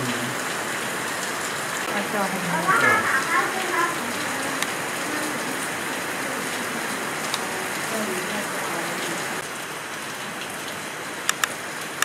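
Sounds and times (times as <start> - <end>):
steady rain falling: 0.0 - 12.0
faint murmuring voices: 1.9 - 9.4.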